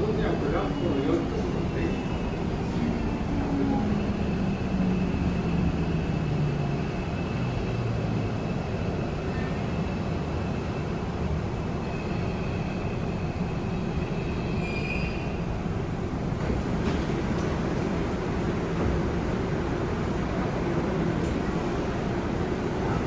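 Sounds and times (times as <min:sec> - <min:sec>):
subway traction motor whine: 0:00.0 - 0:23.0
train running rumble: 0:12.7 - 0:23.0
brake squeal: 0:14.1 - 0:15.4.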